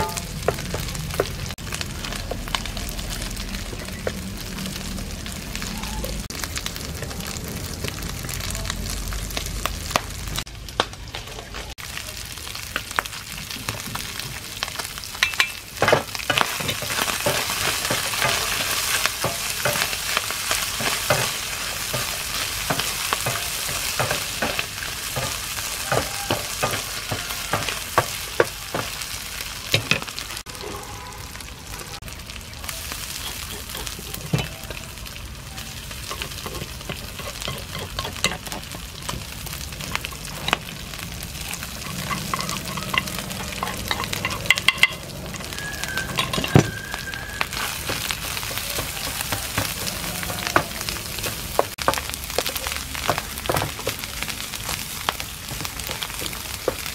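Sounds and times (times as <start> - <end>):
food sizzling in hot oil: 0.0 - 30.6, 31.3 - 56.9
spatula clicking and scraping: 35.9 - 46.8, 47.4 - 54.0.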